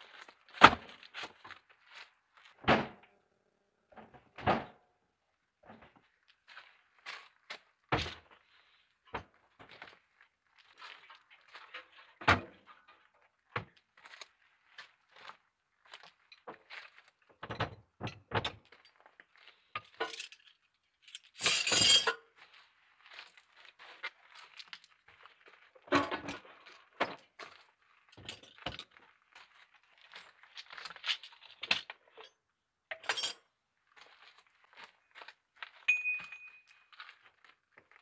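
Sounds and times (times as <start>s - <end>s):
metal tools clinking: 20.0s - 22.2s, 32.2s - 33.4s, 35.9s - 36.9s.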